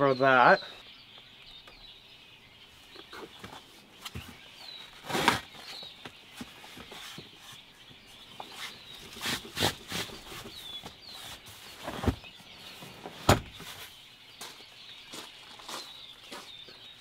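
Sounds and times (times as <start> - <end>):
birds chirping faintly: 0.0 - 17.0
heavy thumps of seat latching: 13.2 - 13.6.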